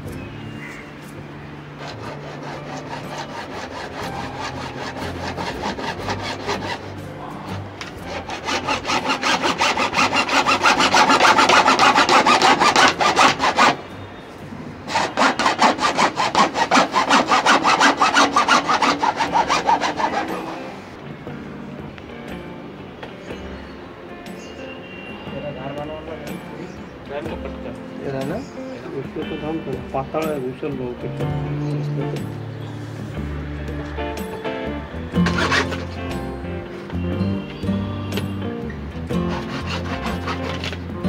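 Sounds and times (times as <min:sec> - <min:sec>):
hacksaw cutting plastic pipe: 0:01.8 - 0:13.8, 0:14.9 - 0:20.8, 0:35.2 - 0:36.2, 0:39.1 - 0:40.9.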